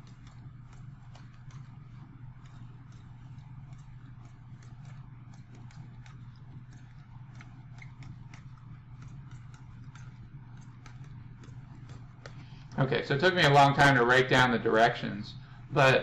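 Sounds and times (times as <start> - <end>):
stylus tapping on tablet: 0.0 - 12.8
low steady hum: 0.0 - 16.0.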